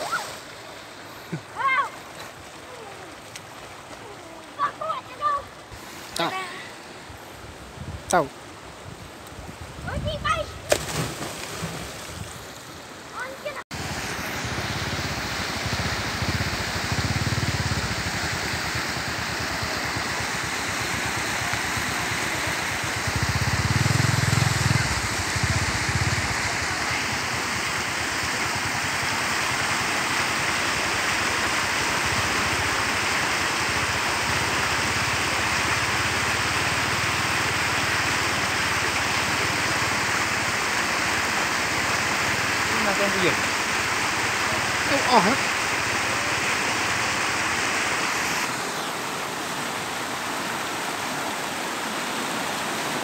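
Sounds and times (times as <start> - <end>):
wind rumbling on microphone: 7.4 - 10.7, 13.8 - 28.0.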